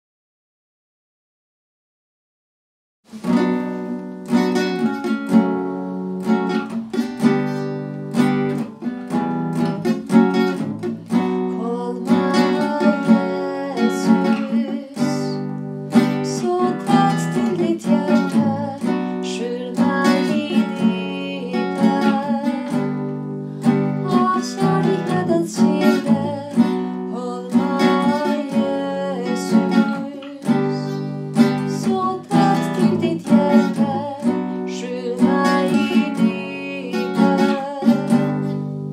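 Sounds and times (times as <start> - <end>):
nylon-string guitar chords: 3.1 - 38.9
woman singing slow worship song: 11.4 - 23.0, 23.8 - 38.9.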